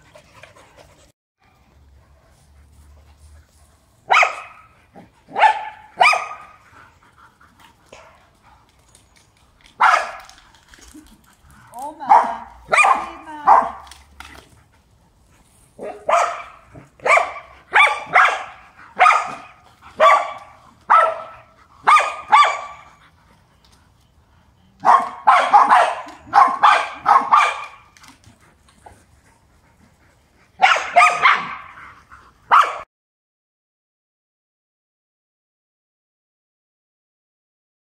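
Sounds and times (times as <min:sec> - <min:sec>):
large dogs barking: 0:04.1 - 0:06.6, 0:09.8 - 0:10.4, 0:12.0 - 0:14.0, 0:15.8 - 0:23.1, 0:24.8 - 0:28.2, 0:30.5 - 0:32.8.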